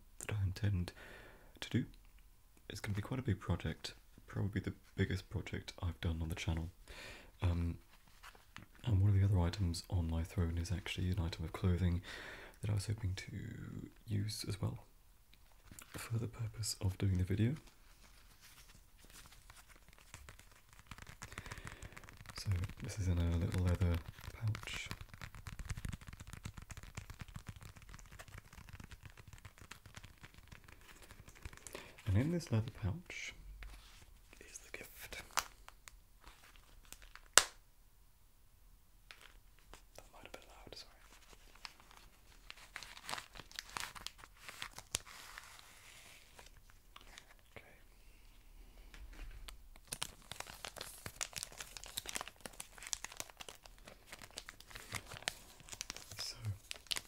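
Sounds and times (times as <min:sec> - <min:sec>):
fingers fiddling with leather pouch: 0:17.1 - 0:32.8, 0:41.0 - 0:47.5, 0:48.9 - 0:57.0
plastic packaging crinkling: 0:17.1 - 0:32.8, 0:35.2 - 0:37.6, 0:39.1 - 0:47.5, 0:49.1 - 0:57.0.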